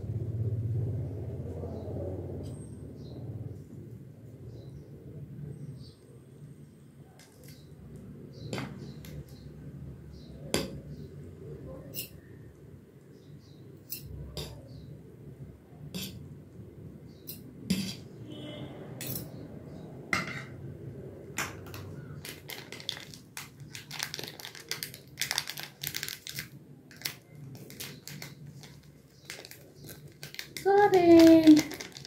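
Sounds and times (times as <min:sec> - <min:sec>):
cutlery clinking on ceramic plate: 0:19.0 - 0:19.4
plastic sachet crinkling: 0:21.7 - 0:32.0.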